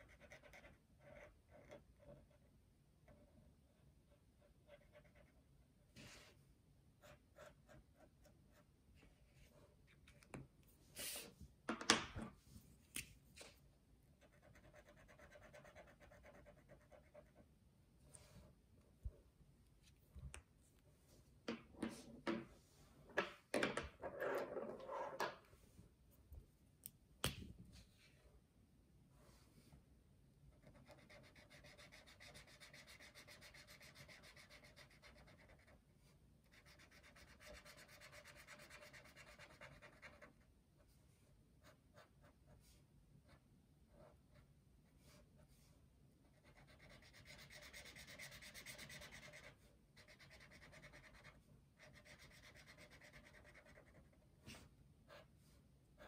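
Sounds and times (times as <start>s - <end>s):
marker scratching on paper: 0.0s - 2.5s, 4.1s - 5.4s, 14.2s - 17.4s, 30.6s - 35.8s, 36.5s - 40.4s, 46.3s - 55.3s.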